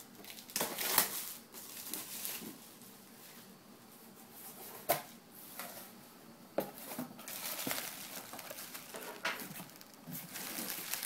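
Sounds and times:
packing plastic rustling: 0:00.2 - 0:02.6, 0:06.8 - 0:11.0.

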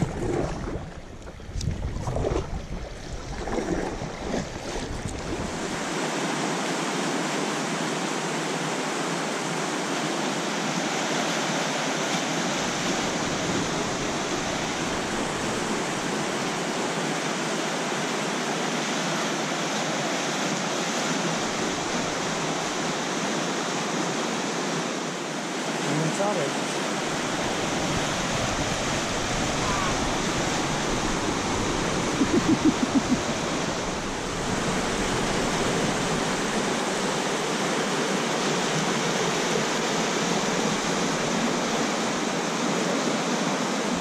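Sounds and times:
wind buffeting microphone: 0:00.0 - 0:05.8, 0:27.2 - 0:36.7
whitewater rushing through rapid: 0:03.3 - 0:44.0.

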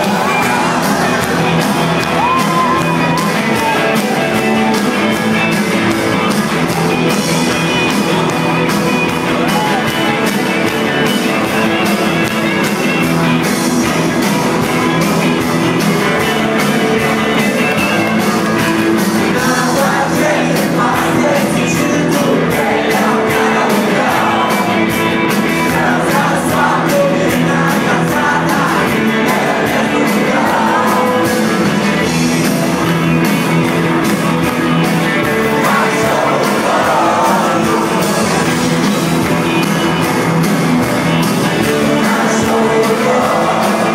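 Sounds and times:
rock band playing live: 0:00.0 - 0:43.9
person singing: 0:19.2 - 0:31.6, 0:35.4 - 0:38.8, 0:41.6 - 0:43.9.

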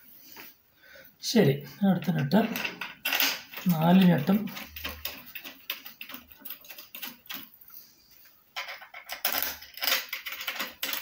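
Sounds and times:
small metal clicks and scraping: 0:02.0 - 0:07.5, 0:08.6 - 0:11.0.

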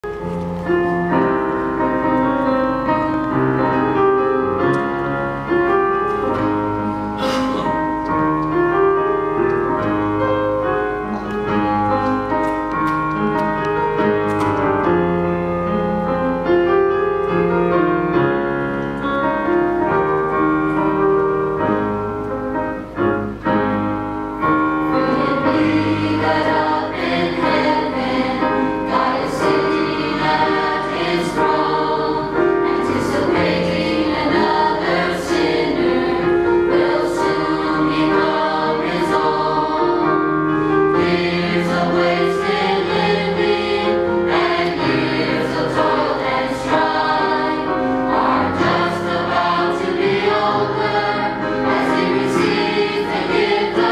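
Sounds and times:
piano accompaniment: 0:00.0 - 0:53.9
church choir singing: 0:24.8 - 0:53.9.

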